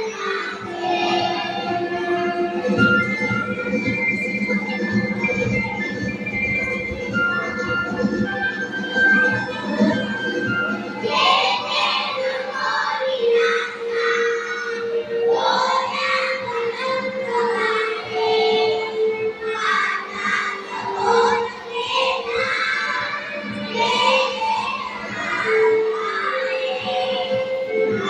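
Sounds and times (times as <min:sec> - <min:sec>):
children singing together: 0:00.0 - 0:03.3, 0:09.3 - 0:28.0
instrumental music with held notes: 0:00.0 - 0:28.0.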